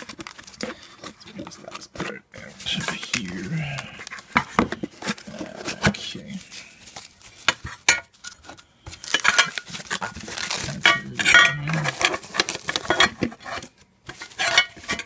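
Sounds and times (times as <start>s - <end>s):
paper rustling: 8.4s - 15.0s
metal clinks and knocks: 10.7s - 12.2s.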